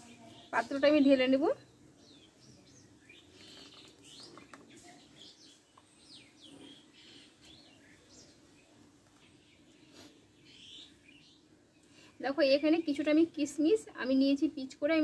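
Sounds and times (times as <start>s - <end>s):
faint bird chirps: 0.0s - 13.4s.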